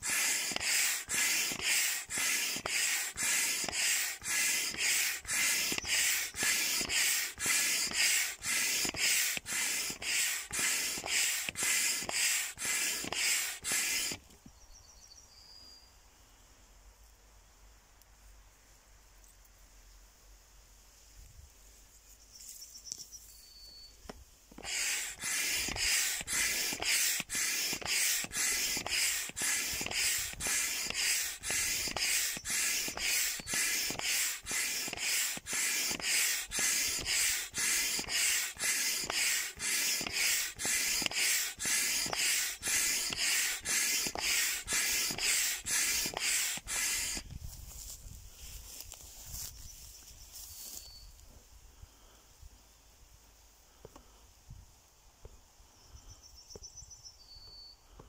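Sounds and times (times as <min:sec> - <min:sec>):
hand pump whooshing: 0:00.0 - 0:14.4, 0:24.5 - 0:47.4.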